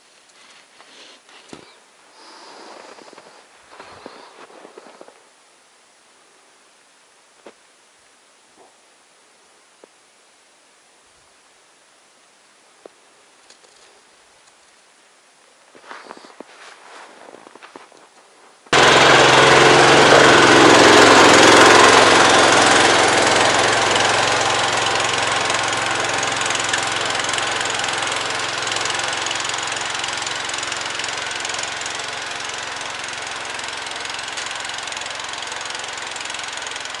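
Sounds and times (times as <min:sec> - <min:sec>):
small vehicle engine pulling away: 0:18.7 - 0:37.0.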